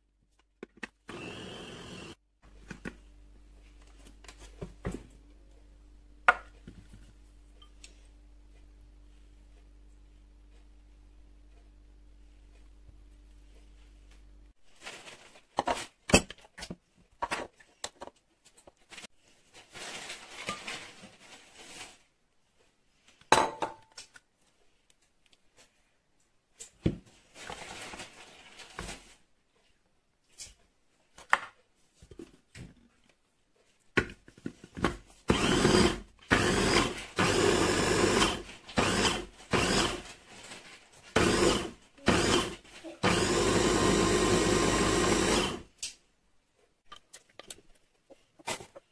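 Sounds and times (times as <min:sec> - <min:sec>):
food chopper motor whirring: 0:01.1 - 0:02.2, 0:35.3 - 0:40.2, 0:41.1 - 0:45.7.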